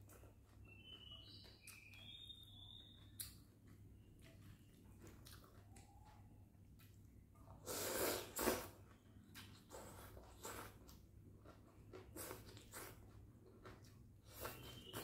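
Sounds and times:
chewing: 0:03.1 - 0:07.8, 0:08.4 - 0:15.0
noodles slurped from bowl: 0:07.6 - 0:08.8.

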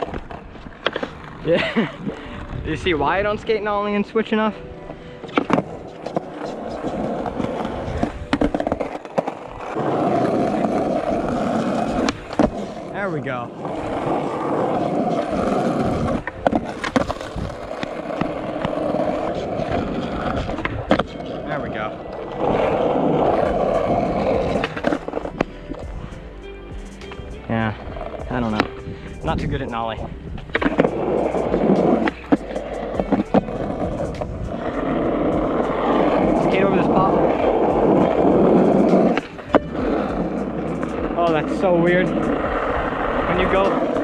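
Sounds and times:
skateboard clacks: 0:00.0 - 0:02.2, 0:05.2 - 0:13.0, 0:13.7 - 0:25.9, 0:28.0 - 0:44.0
skateboard wheels rolling on asphalt: 0:00.0 - 0:44.0.

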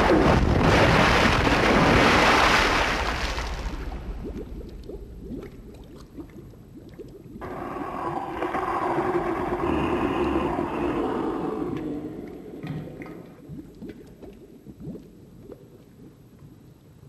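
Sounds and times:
water churning and gurgling: 0:00.0 - 0:17.0
monster roar: 0:07.4 - 0:12.6.

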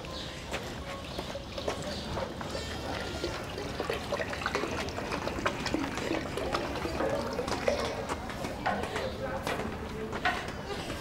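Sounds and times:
water splashing in metal bucket: 0:03.0 - 0:08.3.

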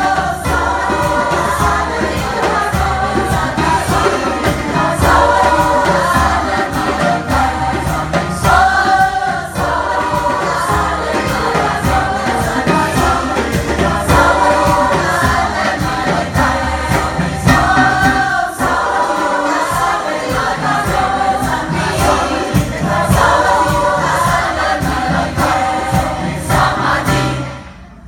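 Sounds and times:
bass line: 0:00.0 - 0:28.0
choir singing with band: 0:00.0 - 0:28.0
drums beating: 0:00.0 - 0:28.0.

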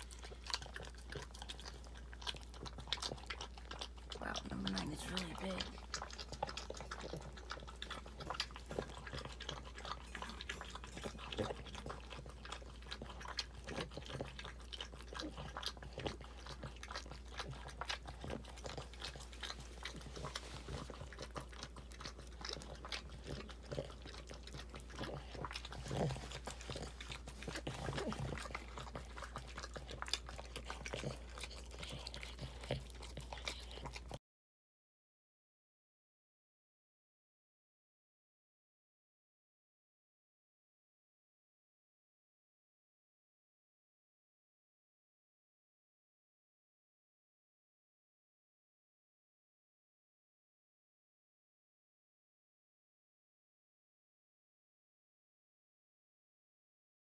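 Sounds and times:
dog licking wet smacking: 0:00.0 - 0:34.2.

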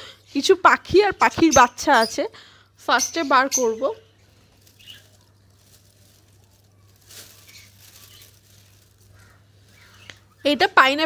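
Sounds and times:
handling sounds: 0:03.6 - 0:10.3
parrots chirping: 0:07.5 - 0:10.4.

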